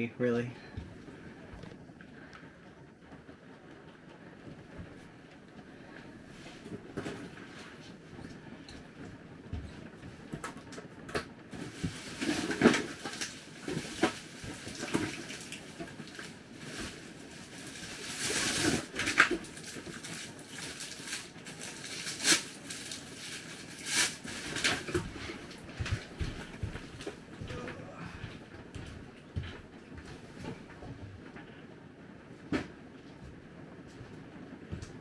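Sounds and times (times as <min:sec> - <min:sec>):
cushions and bedding rustling: 0:00.5 - 0:35.0.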